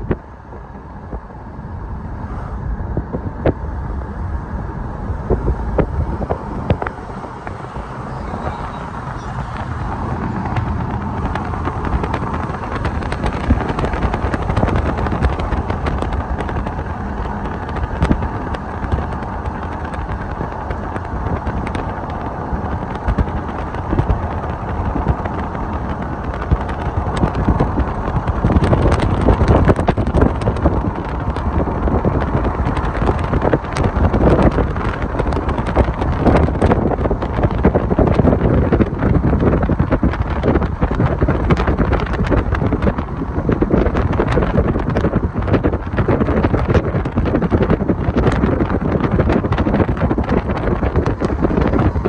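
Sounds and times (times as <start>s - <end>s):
freight train rolling past: 3.7s - 28.4s.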